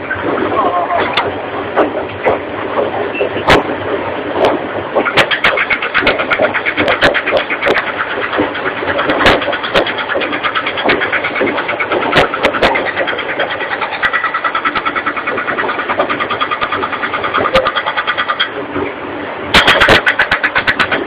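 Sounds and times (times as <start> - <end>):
cutting head grinding and rattling: 5.0 - 18.6, 19.5 - 21.0.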